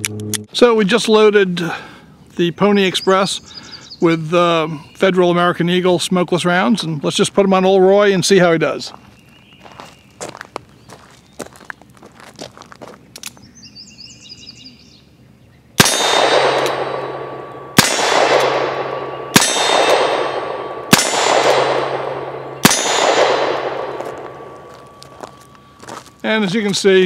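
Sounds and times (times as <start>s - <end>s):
revolver shots: 15.8s - 24.7s
steel target ringing: 15.8s - 26.4s.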